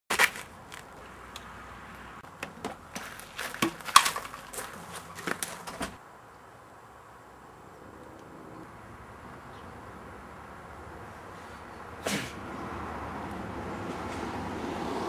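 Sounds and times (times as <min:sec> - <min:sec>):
footsteps crunching on gravel: 0:00.1 - 0:01.2, 0:02.7 - 0:06.0.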